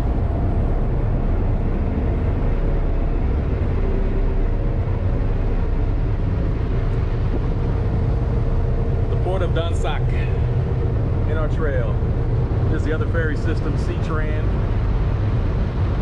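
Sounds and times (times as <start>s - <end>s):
ferry engines droning: 0.0s - 16.0s
wind: 0.0s - 16.0s.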